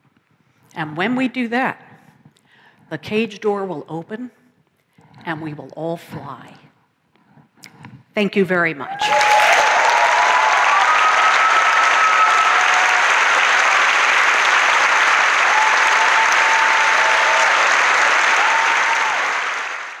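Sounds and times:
audience applauding: 9.0 - 20.0.

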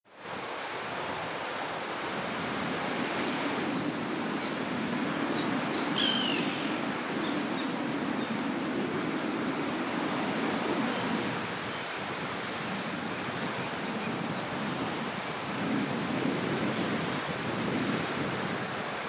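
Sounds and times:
small waves washing up beach: 0.2 - 19.0
high call falling in pitch: 6.0 - 6.7.

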